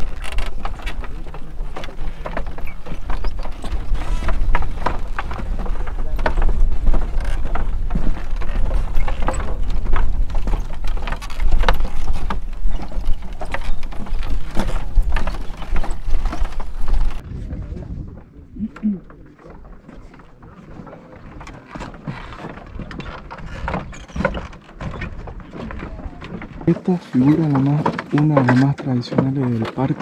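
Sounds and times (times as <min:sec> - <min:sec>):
car driving on gravel: 0:00.0 - 0:17.2.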